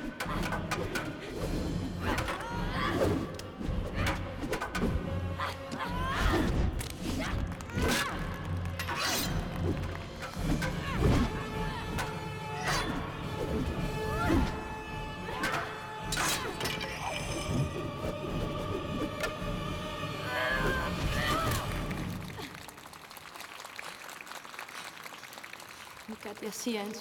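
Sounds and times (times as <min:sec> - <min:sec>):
background music: 0:00.0 - 0:23.5.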